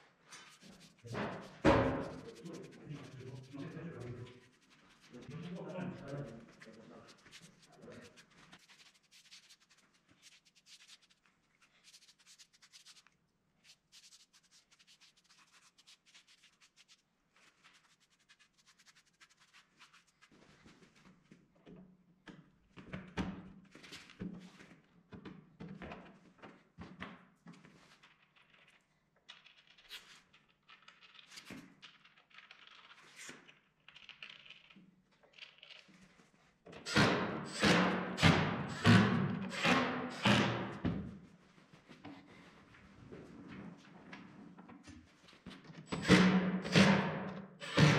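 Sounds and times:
clicks and scratches of handling: 0.3 - 21.1, 27.6 - 36.6
wooden knocks and thuds: 1.1 - 2.3.

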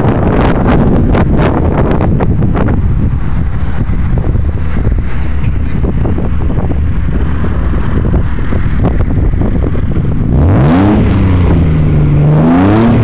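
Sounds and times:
car engine idling: 0.0 - 13.0
engine revving: 6.9 - 13.0.

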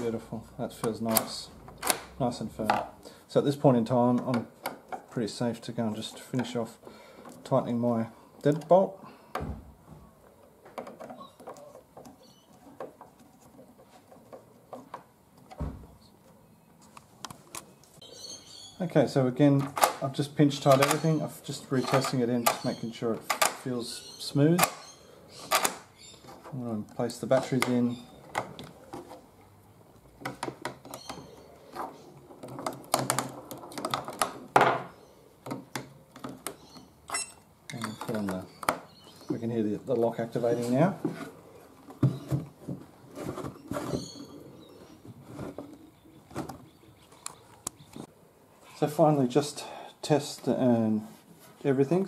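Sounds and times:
plastic scrape: 43.0 - 45.8.

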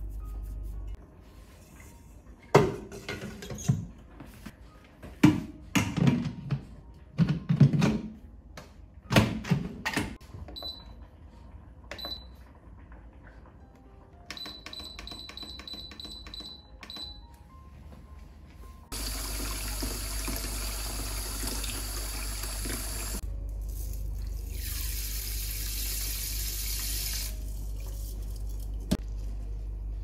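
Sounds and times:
tap water running into steel bowl: 18.9 - 23.2.

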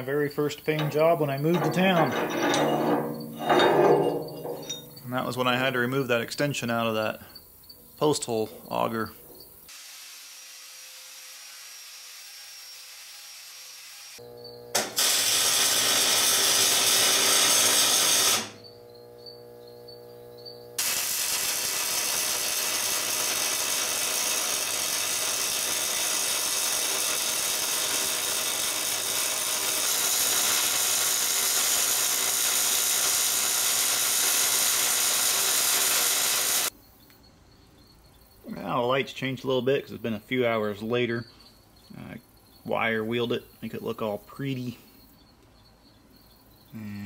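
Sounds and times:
arc welding crackle and sizzle: 11.4 - 36.8.

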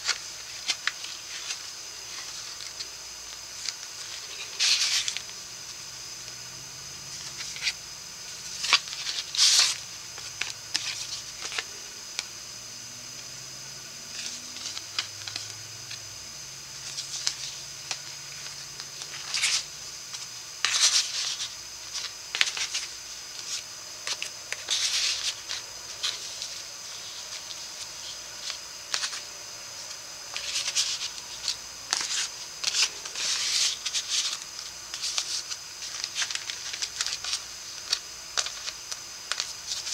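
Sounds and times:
paper rustling and scraping: 0.0 - 5.4, 7.1 - 12.3, 14.1 - 16.0, 16.8 - 39.9.

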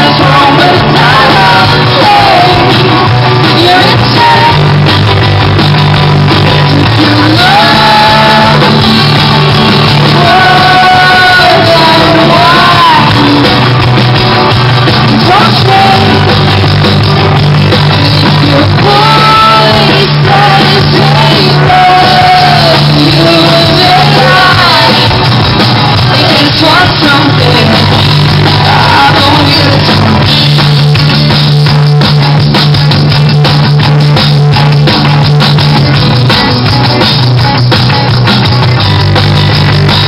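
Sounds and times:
woman singing: 0.0 - 4.8, 6.6 - 8.8, 10.0 - 13.7, 15.0 - 16.5, 18.0 - 25.2, 26.0 - 30.3
rock band playing: 0.0 - 40.0.

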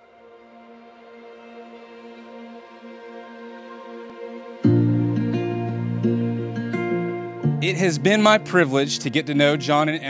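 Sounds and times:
plucked guitar notes: 4.6 - 10.0.

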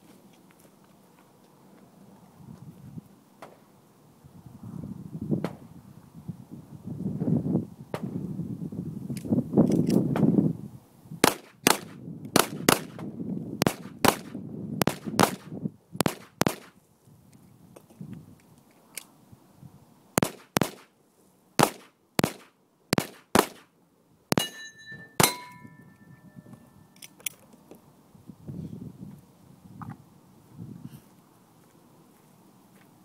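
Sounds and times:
pistol shots: 11.2 - 13.0, 13.6 - 16.7, 20.2 - 20.9, 21.6 - 23.7, 24.3 - 25.6
steel target ringing: 24.3 - 27.0.

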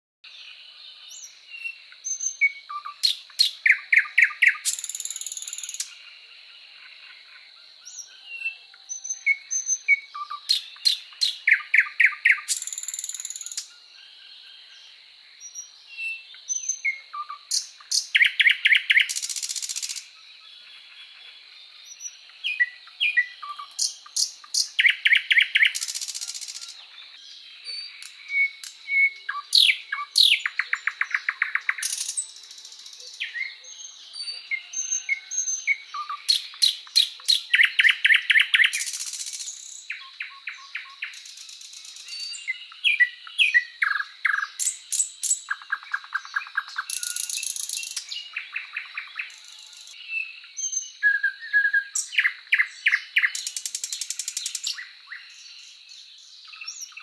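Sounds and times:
soft single bird chirps: 1.1 - 6.0, 21.8 - 55.7
bird chirps with buzzy trill: 1.2 - 6.0, 8.9 - 13.8, 15.4 - 21.0, 21.8 - 55.7.

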